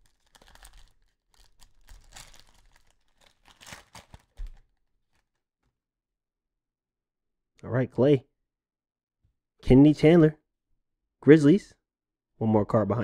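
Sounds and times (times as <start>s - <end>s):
wrapper crinkling and tearing: 0.0s - 5.4s.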